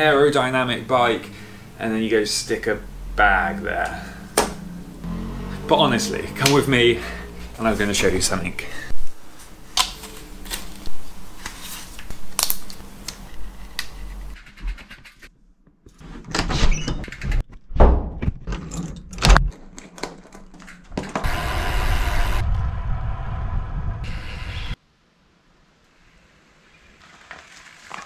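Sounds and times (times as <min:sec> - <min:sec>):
helmet clicks and rustling: 0:18.4 - 0:21.3
wind rush: 0:21.2 - 0:24.8
bicycle tyre noise: 0:26.0 - 0:28.0.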